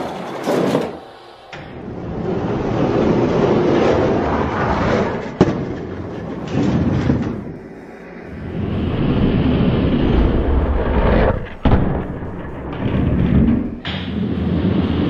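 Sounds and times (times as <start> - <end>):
toy trucks rolling on plastic track: 0.0 - 1.3.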